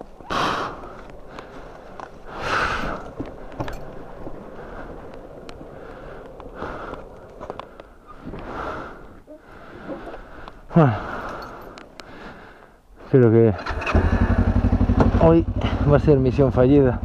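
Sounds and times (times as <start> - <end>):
heavy breathing in helmet: 0.2 - 13.0.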